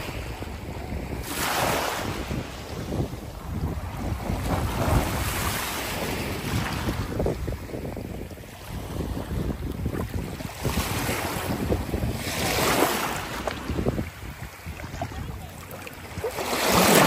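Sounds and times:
wind buffeting microphone: 0.0s - 17.0s
small waves washing over rocks: 10.0s - 17.0s.

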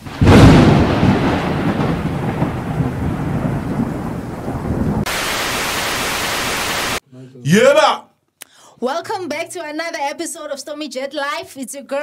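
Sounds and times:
rain hiss: 0.0s - 7.0s
thunder rumbling: 0.0s - 7.0s.

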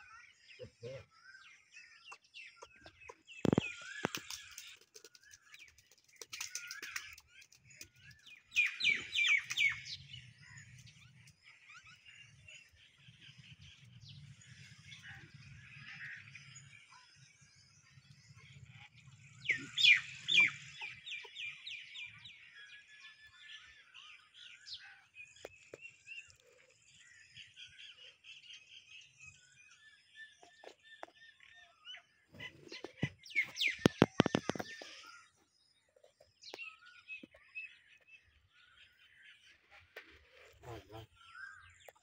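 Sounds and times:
soft bird chirping: 0.0s - 15.5s.

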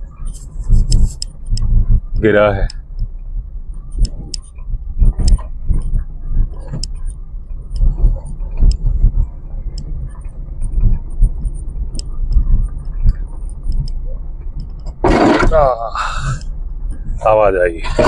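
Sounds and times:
car rumbling over rocks: 7.9s - 16.4s.

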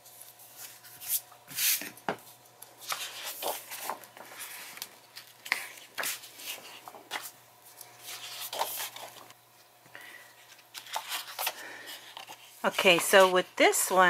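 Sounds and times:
paper rustling: 2.8s - 9.3s, 10.4s - 14.0s.

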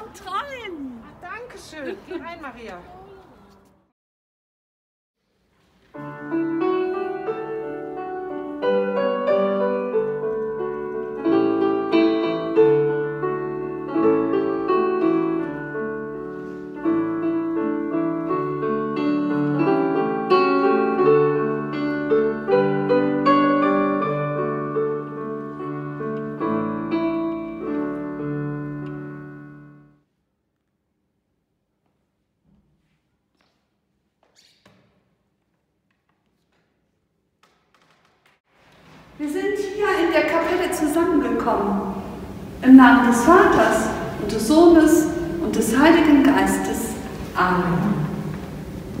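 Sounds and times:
piano music: 5.9s - 30.0s, 39.2s - 49.0s.

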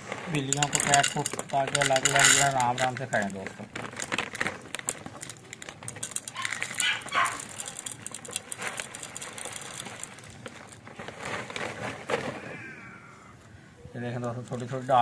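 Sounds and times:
kibble pouring into ceramic bowl: 0.3s - 10.1s.

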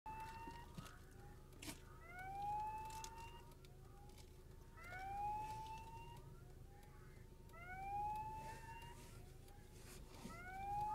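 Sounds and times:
warning siren whooping: 0.1s - 0.9s, 2.0s - 3.6s, 4.8s - 6.4s, 7.5s - 9.2s, 10.3s - 10.9s.

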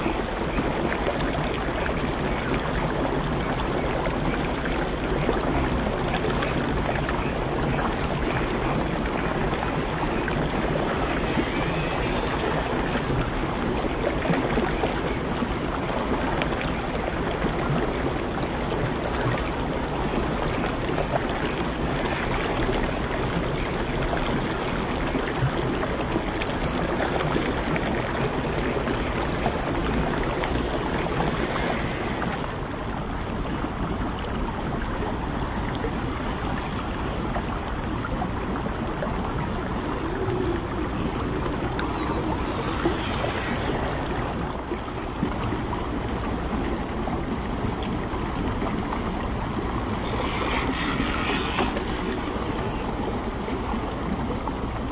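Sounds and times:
stream water running over rocks: 0.0s - 54.9s.

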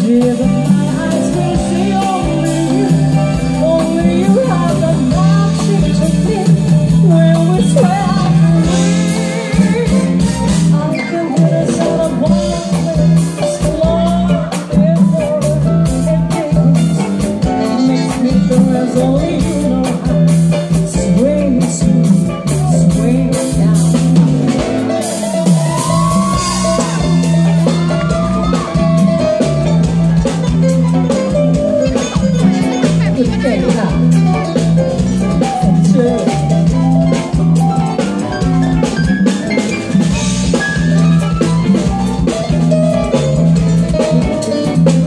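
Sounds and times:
woman singing into a microphone: 0.0s - 24.9s, 35.3s - 36.9s
bass guitar: 0.0s - 45.0s
drum kit: 0.0s - 45.0s
electric guitar: 0.0s - 45.0s.

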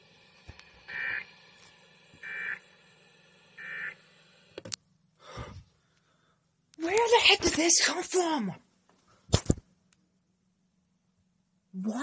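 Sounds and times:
short electronic beeps: 3.6s - 4.0s.

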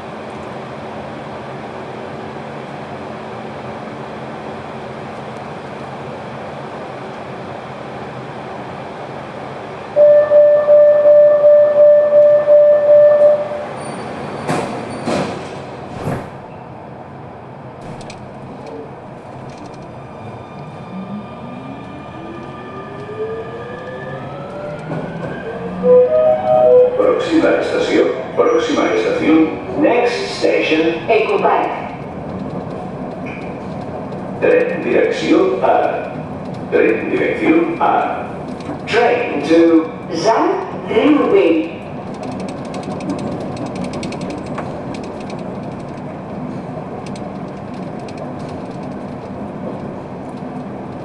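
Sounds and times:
train hum: 0.0s - 51.0s
traction motors whining: 19.2s - 25.9s
loud warning tone: 22.7s - 27.4s.

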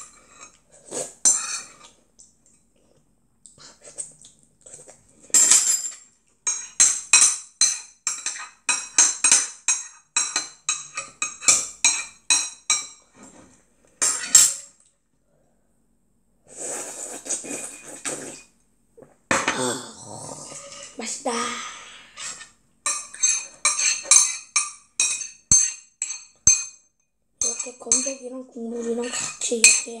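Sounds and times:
slurping: 0.5s - 2.0s, 16.5s - 20.9s
metal spoon scraping ceramic bowl: 1.2s - 1.9s, 22.1s - 26.8s, 27.4s - 30.0s.

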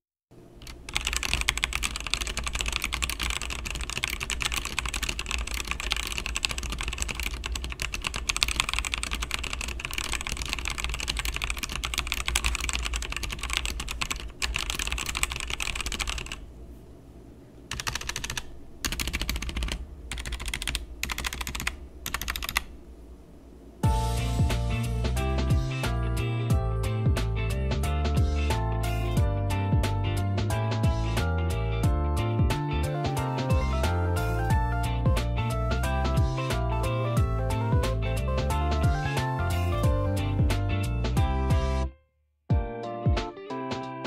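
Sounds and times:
mechanical keyboard typing: 0.6s - 16.4s, 17.7s - 22.7s.

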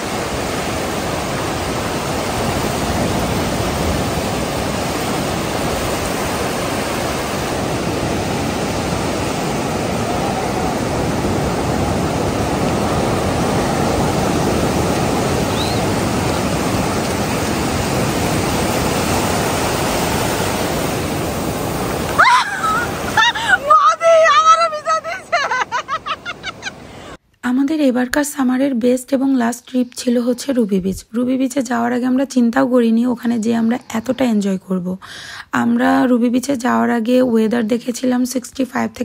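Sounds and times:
ocean surf breaking on beach: 0.0s - 27.2s.

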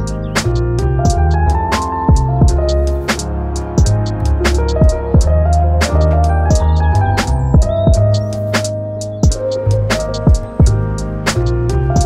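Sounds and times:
held bass and melody notes: 0.0s - 12.0s
kick drum: 1.1s - 1.4s, 2.1s - 2.7s, 3.8s - 4.0s, 4.8s - 5.4s, 6.5s - 6.8s, 7.6s - 8.2s, 9.2s - 9.4s, 10.3s - 10.9s.

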